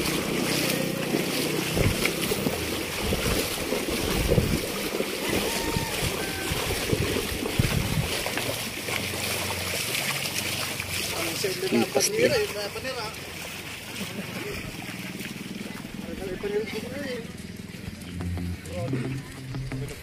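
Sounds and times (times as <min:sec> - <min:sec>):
water sloshing in plastic tub: 0:00.0 - 0:16.9
footsteps splashing in surf: 0:00.0 - 0:17.1
wind on microphone: 0:01.7 - 0:08.4.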